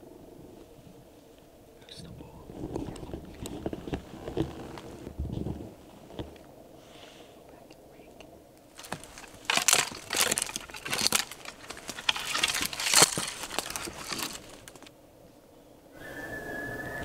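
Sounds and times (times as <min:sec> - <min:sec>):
branches crackling and snapping: 0:02.5 - 0:06.5, 0:08.6 - 0:15.0.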